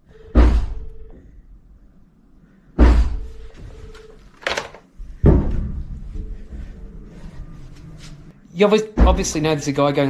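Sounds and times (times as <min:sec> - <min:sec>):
fist punching walls: 0:02.8 - 0:03.3.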